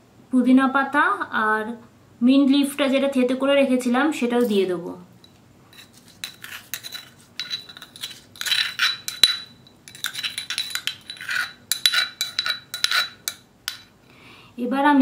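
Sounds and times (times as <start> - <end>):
metal spoon scraping a bowl: 5.2 - 13.9.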